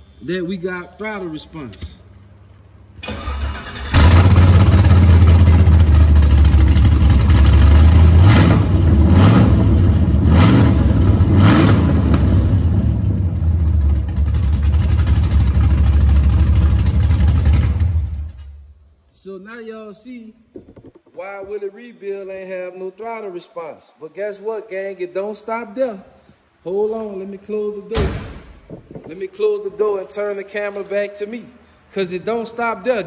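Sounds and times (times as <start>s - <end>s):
car engine running and revving: 4.0s - 17.9s.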